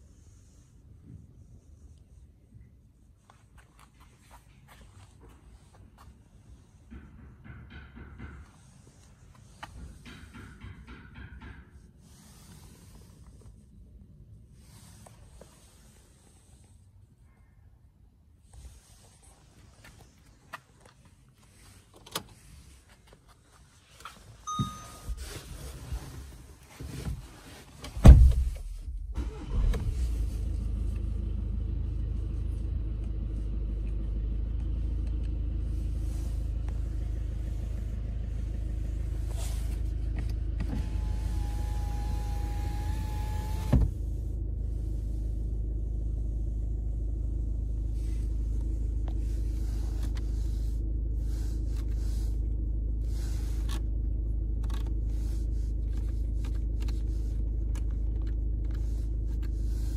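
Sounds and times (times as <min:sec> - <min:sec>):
short beep: 0:24.4 - 0:25.4
diesel engine starting and idling: 0:27.5 - 0:59.9.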